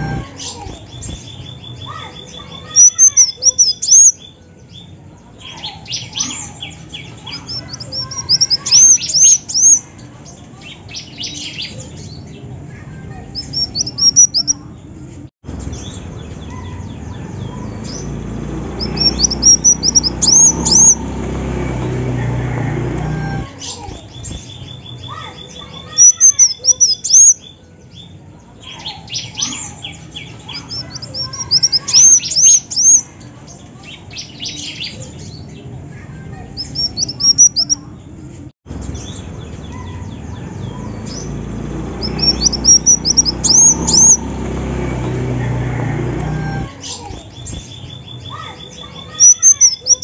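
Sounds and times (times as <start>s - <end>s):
bird chirping and twittering: 0.0s - 50.0s
fast ticking bird call: 13.4s - 14.6s, 18.8s - 21.1s, 30.6s - 33.0s, 36.6s - 37.8s, 42.0s - 44.2s, 48.3s - 50.0s.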